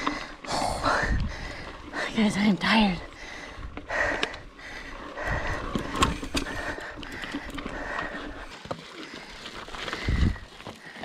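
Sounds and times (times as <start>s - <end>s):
bike knocking and rattling over rock: 5.2s - 11.0s.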